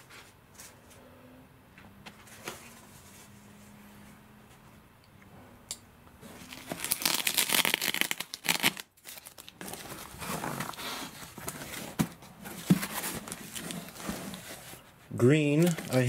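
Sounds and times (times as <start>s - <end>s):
foil bags crinkling: 6.4s - 12.1s, 15.4s - 16.0s.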